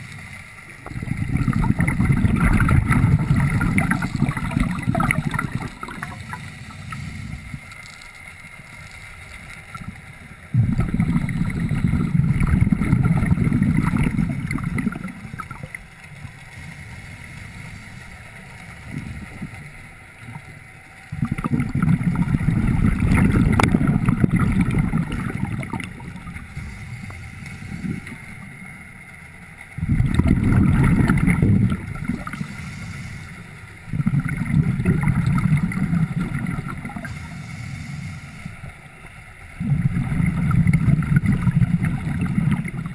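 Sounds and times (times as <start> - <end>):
underwater bubbles gushing: 0.0 - 42.9.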